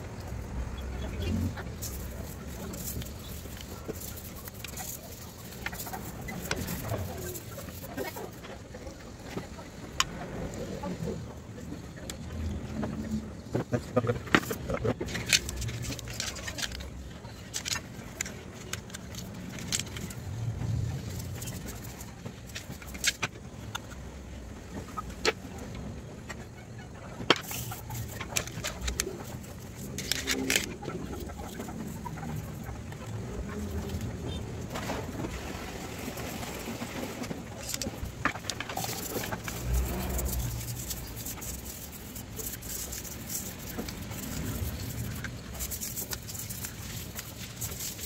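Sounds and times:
brushes scrubbing metal part: 0:37.6 - 0:48.0.

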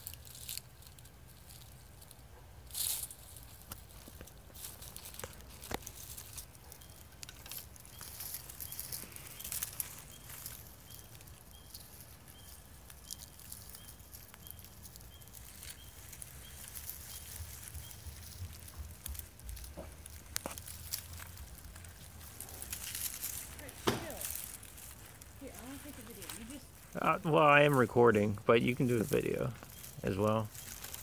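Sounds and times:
snakes rustling in dry leaves: 0:00.0 - 0:31.0
soft high chirp: 0:06.7 - 0:18.3, 0:29.6 - 0:31.0.

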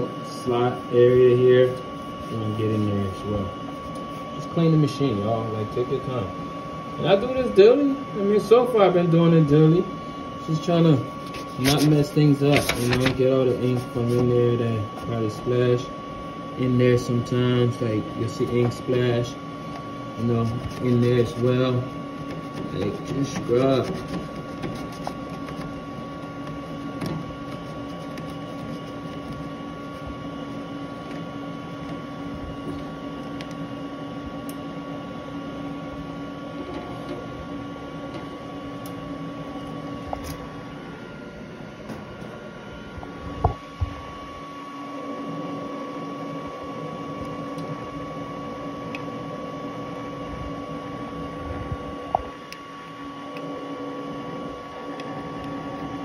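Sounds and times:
printer humming: 0:00.0 - 0:56.0.

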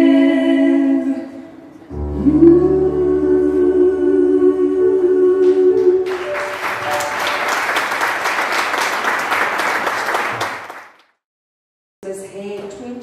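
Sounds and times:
music: 0:01.9 - 0:07.8
audience applause: 0:06.0 - 0:11.0.

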